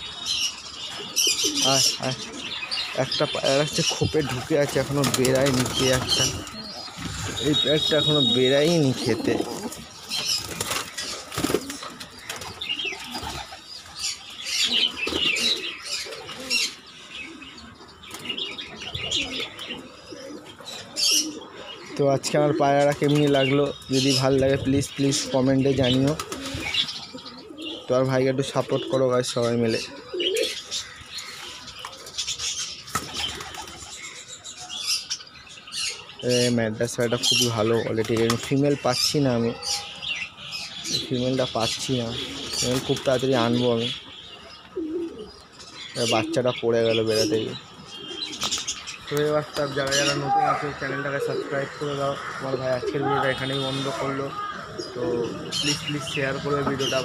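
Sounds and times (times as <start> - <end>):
birds chirping: 0.0 - 57.0
pigeons cooing: 0.0 - 57.0
pigeon wings flapping: 4.2 - 6.4, 9.4 - 13.6, 32.9 - 33.9.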